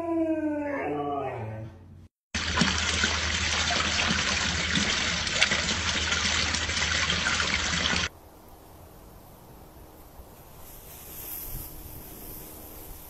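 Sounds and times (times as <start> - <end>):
fountain water splashing: 2.4 - 8.1
faint hiss: 8.1 - 13.0.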